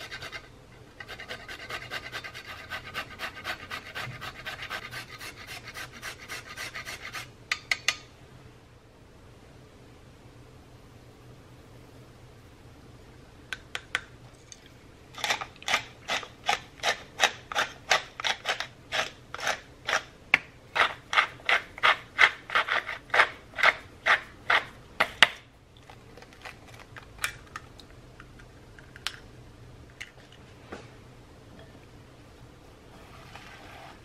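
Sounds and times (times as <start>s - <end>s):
pepper mill grinding: 14.6s - 20.1s, 20.7s - 24.7s.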